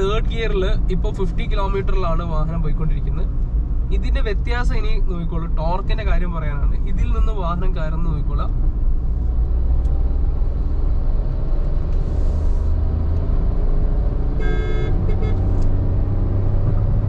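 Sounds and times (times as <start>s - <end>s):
car engine accelerating hard: 9.2s - 17.0s.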